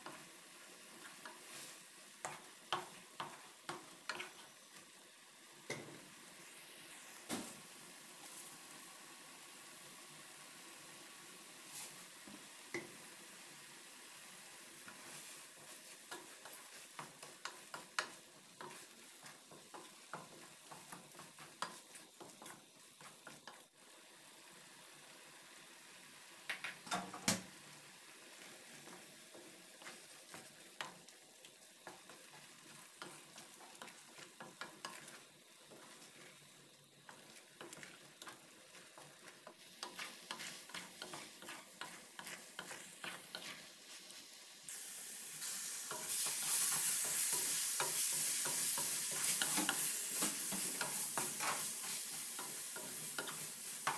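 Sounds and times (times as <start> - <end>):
vegetables sizzling: 0.0 - 53.9
spatula scraping a metal pan: 37.1 - 44.0, 45.9 - 53.9.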